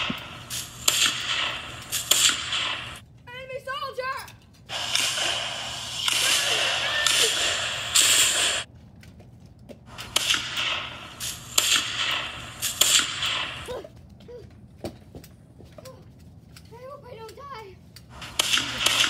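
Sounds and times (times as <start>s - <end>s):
toy gunfire: 0.0s - 3.0s, 4.7s - 8.7s, 9.9s - 13.8s, 18.1s - 19.0s.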